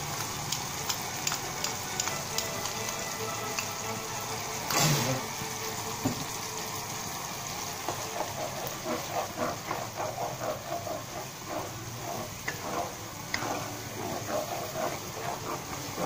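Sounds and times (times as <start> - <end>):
sauce simmering hiss: 0.0 - 16.0
wooden spatula scraping pan: 7.5 - 16.0.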